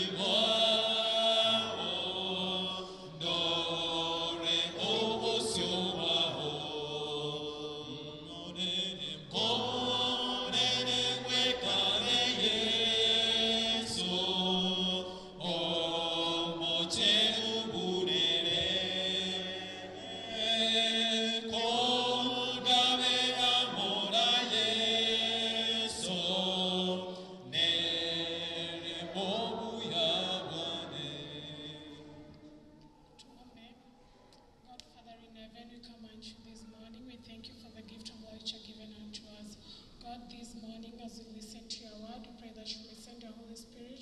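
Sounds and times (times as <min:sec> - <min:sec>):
group singing a hymn: 0:00.0 - 0:32.6.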